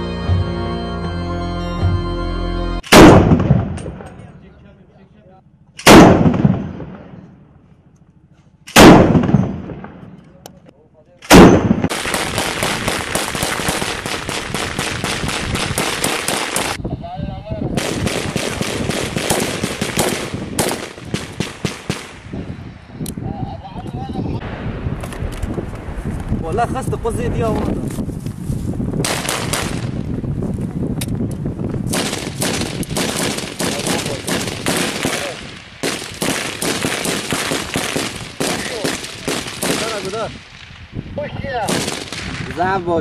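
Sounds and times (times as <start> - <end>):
gunshots: 2.8 - 4.2, 5.8 - 7.2, 8.7 - 10.1, 11.2 - 16.8, 17.8 - 22.2, 31.9 - 40.8, 41.6 - 42.8
automatic gunfire: 2.9 - 3.8, 5.8 - 7.0, 8.7 - 9.9, 11.3 - 16.8, 17.8 - 22.2, 31.9 - 40.2, 41.7 - 42.2
low rumble: 24.0 - 29.1.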